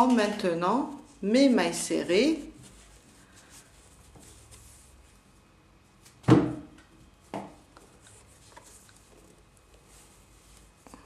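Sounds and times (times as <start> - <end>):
hands rubbing yarn: 2.0 - 5.5, 7.8 - 11.0
thump: 6.2 - 6.7.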